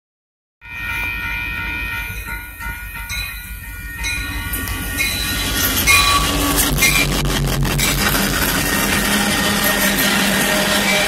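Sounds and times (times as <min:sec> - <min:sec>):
low rumble of locomotive engine: 0:00.8 - 0:11.0
locomotive horn blast: 0:04.6 - 0:11.0.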